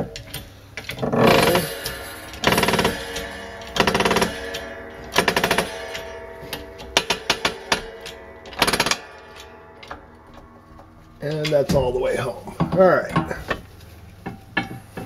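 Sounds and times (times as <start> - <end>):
bearing press creaking clicks: 0.0 - 11.6.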